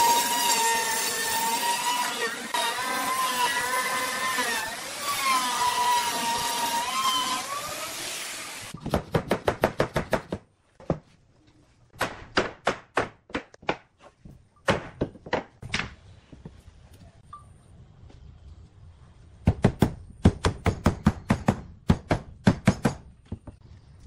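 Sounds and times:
router whining cutting wood: 0.0 - 8.7.

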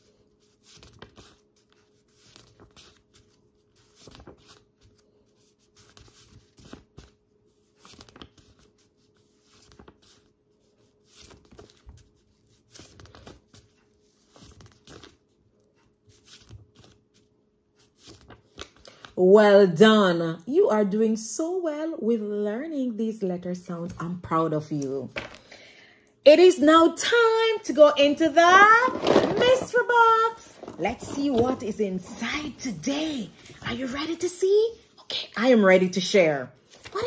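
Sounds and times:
paper flashcards flipping: 0.2 - 19.2, 25.1 - 25.5, 28.4 - 32.6, 36.6 - 37.0.

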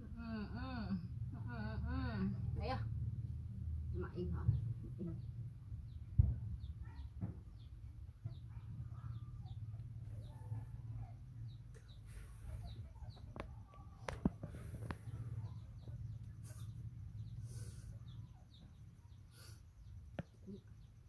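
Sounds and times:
chickens clucking and peeping: 6.6 - 19.2.

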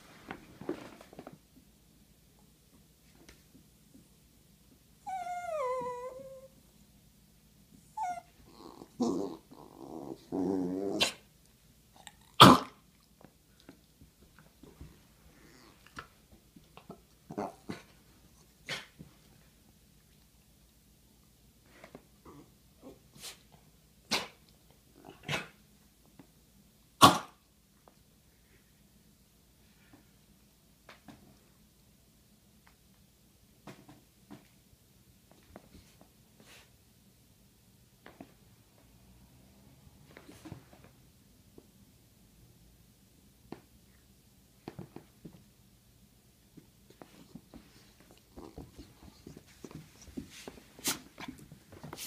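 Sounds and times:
small dog whining and yelping: 5.0 - 6.6, 7.9 - 11.2
dog growling: 8.0 - 11.2, 15.4 - 15.9, 17.3 - 17.9
small dog coughing: 12.4 - 12.8, 27.0 - 27.4.

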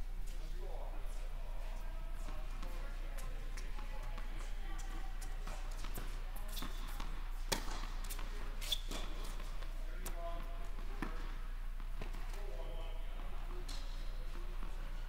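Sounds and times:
tennis ball bouncing: 5.4 - 8.3.

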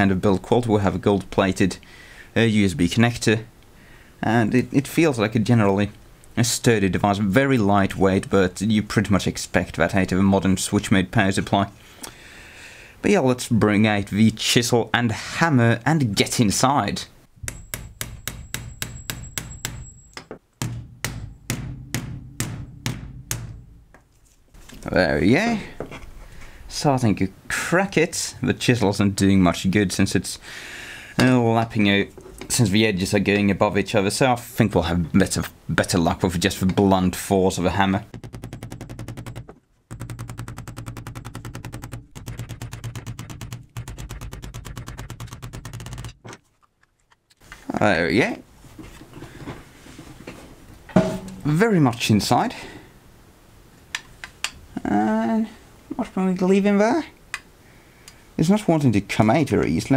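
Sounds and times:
hammer and chisel on plastic: 17.4 - 24.1, 38.1 - 46.4.

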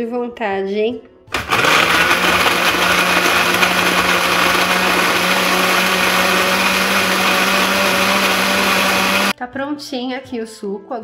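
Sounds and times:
blender motor humming: 1.3 - 9.3.

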